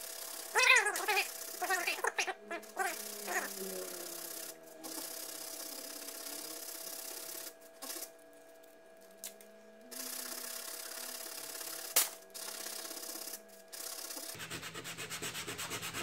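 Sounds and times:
sandpaper rasping: 0:14.3 - 0:16.0.

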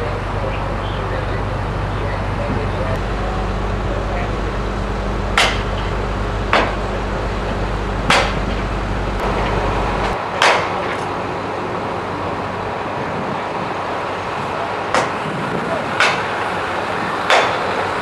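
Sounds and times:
engine idling: 0:00.0 - 0:18.0
sharp knocks: 0:05.4 - 0:05.9, 0:06.5 - 0:06.8, 0:08.1 - 0:08.6, 0:14.9 - 0:15.2, 0:16.0 - 0:16.3, 0:17.3 - 0:17.7.

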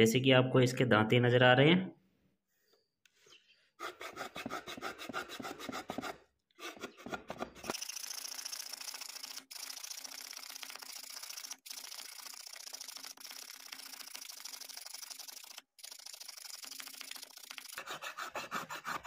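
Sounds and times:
file rasping on wood: 0:03.8 - 0:07.8, 0:17.6 - 0:19.0.

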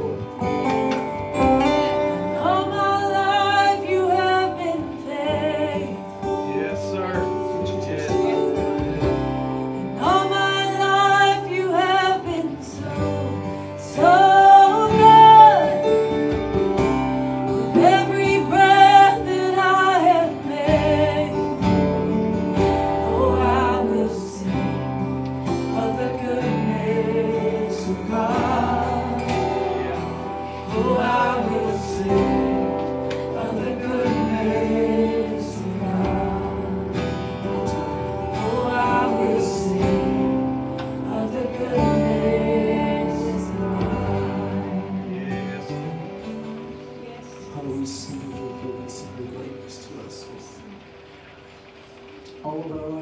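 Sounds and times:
guitar accompaniment: 0:00.0 - 0:53.0
person singing: 0:17.6 - 0:22.3, 0:22.9 - 0:37.1, 0:38.4 - 0:50.7.

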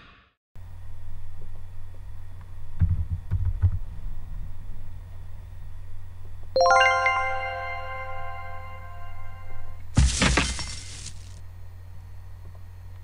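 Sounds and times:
bright ringing chime: 0:06.6 - 0:09.8.

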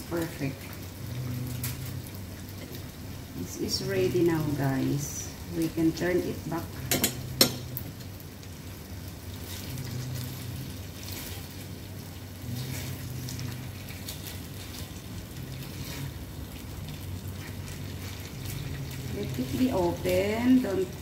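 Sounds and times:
chicken sizzling in oil: 0:00.0 - 0:21.0
steady low hum: 0:00.0 - 0:21.0
spatula scraping pan: 0:12.5 - 0:16.3.

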